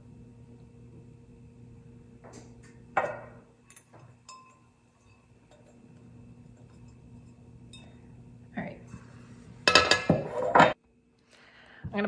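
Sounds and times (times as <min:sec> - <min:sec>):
low steady hum: 0:00.0 - 0:12.0
glassware knocking and clinking: 0:03.0 - 0:08.0, 0:09.7 - 0:10.8.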